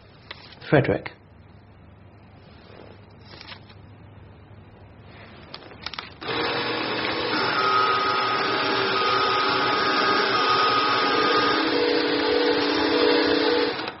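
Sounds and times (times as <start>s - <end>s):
paper shredder clicks: 5.8s - 11.8s, 12.5s - 14.0s
paper shredder motor cutting card: 6.2s - 14.0s
shredder motor whine: 6.2s - 14.0s.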